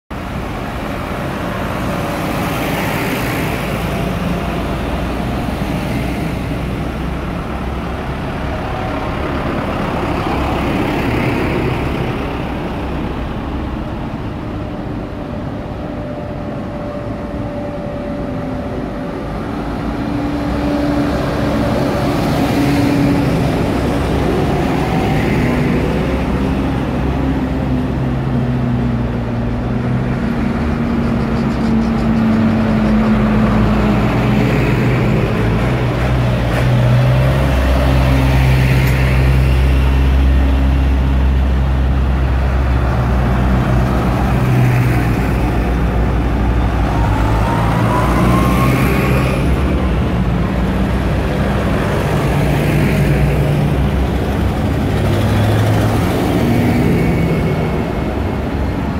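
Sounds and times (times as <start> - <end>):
tractor diesel engines passing: 0.1 - 58.9
car passing: 40.8 - 58.9.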